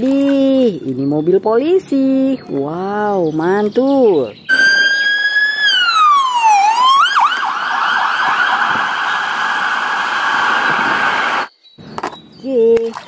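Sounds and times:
police siren wailing and yelping: 4.5s - 11.5s.

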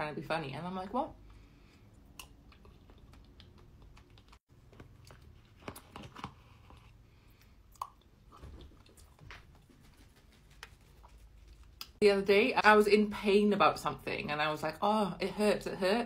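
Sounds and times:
soft chewing: 1.2s - 12.0s.

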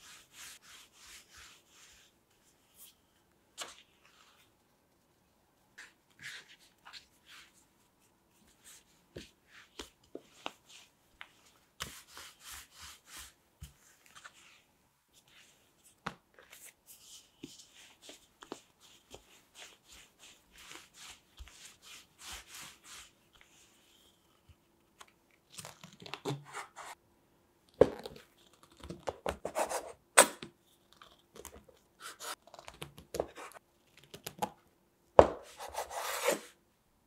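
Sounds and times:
hands kneading dough on wood: 8.5s - 14.4s.

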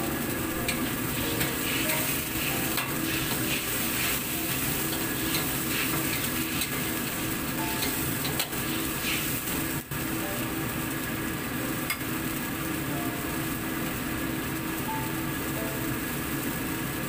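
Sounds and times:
food sizzling: 0.0s - 17.0s
spatula scraping a wok: 0.7s - 7.2s, 7.8s - 9.6s.

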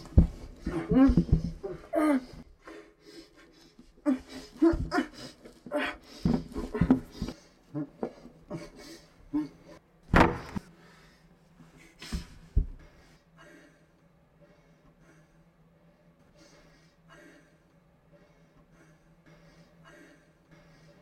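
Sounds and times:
man's muffled groans and panting: 0.0s - 9.8s.

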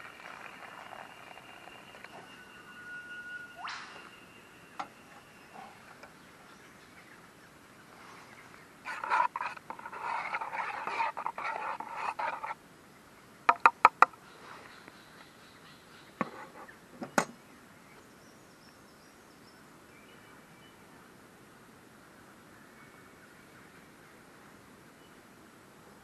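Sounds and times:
spoon scraping inside metal mug: 0.0s - 3.3s, 8.9s - 12.6s.

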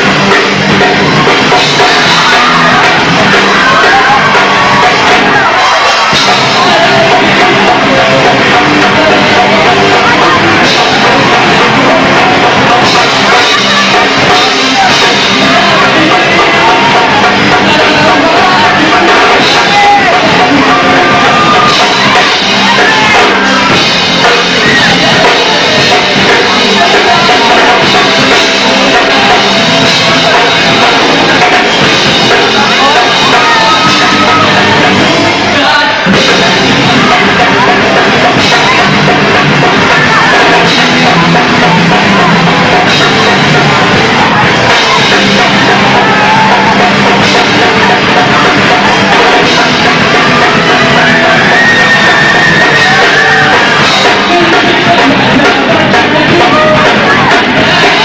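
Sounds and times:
drum kit: 0.0s - 58.0s
electric guitars: 0.0s - 58.0s
sung and yelled vocals: 0.0s - 58.0s.

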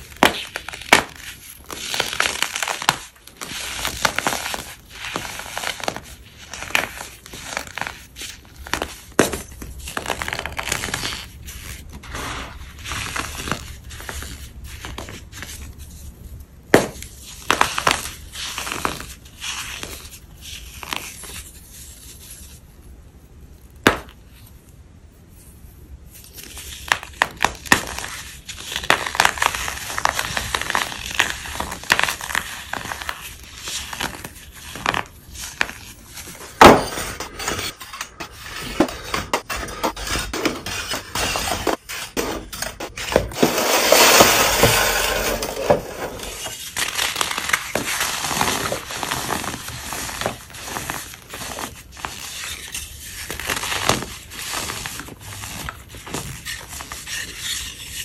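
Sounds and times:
chalky blocks crunching: 26.2s - 58.0s.

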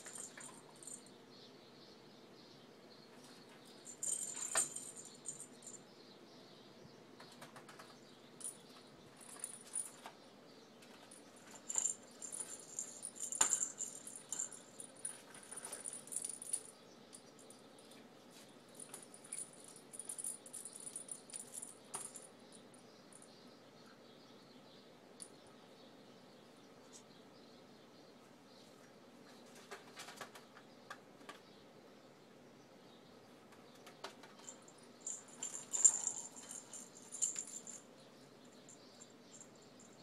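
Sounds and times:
bells jingling in plastic balls: 0.0s - 1.1s, 3.8s - 5.8s, 9.2s - 10.1s, 11.0s - 17.6s, 18.8s - 23.2s, 34.4s - 37.9s.

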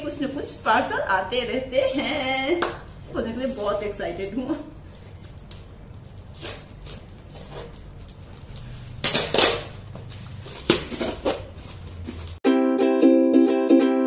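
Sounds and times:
packing tape ripping: 5.2s - 9.8s
wrapping tearing: 5.2s - 9.8s.

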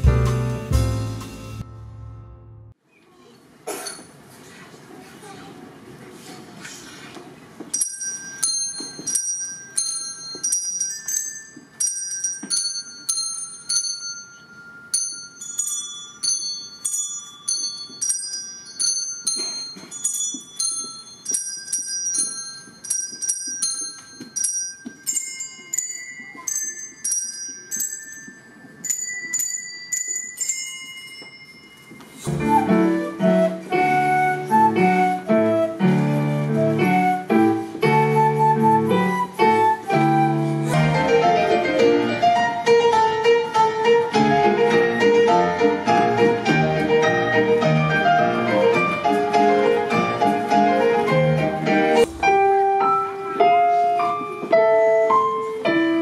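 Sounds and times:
bell-like chiming music: 7.8s - 32.3s
flute playing: 32.2s - 42.7s
electric keyboard: 32.3s - 56.0s.

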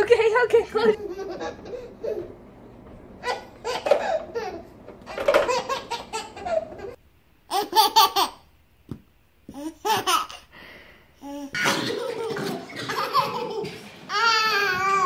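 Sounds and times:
baby laughing: 1.0s - 2.3s, 3.2s - 8.5s, 9.5s - 10.5s, 11.2s - 15.0s
second baby laughing: 1.0s - 2.4s, 3.2s - 8.4s.

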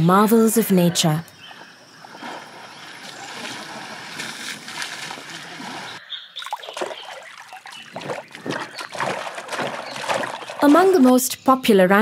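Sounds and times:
water splashing: 1.8s - 11.2s
wings beating in water: 2.0s - 11.1s.

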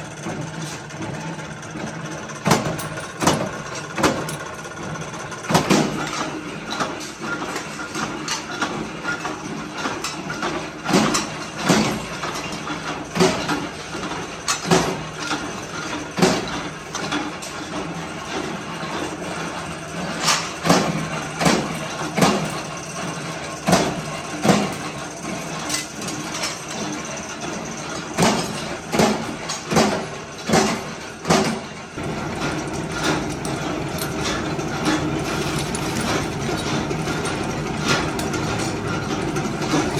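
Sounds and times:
sharp clanks of scrap steel: 2.4s - 39.9s.

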